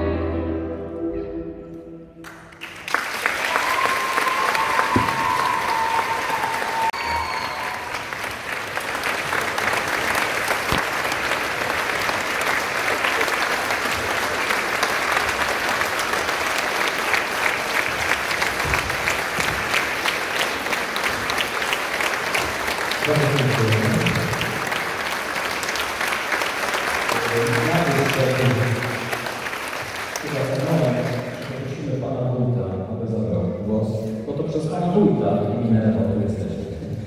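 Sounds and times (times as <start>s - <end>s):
audience applauding: 2.2s - 31.9s.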